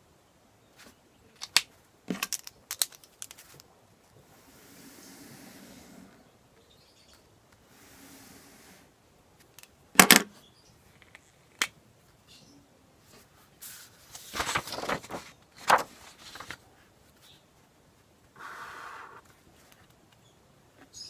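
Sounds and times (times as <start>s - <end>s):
paper rustling: 13.1s - 16.9s.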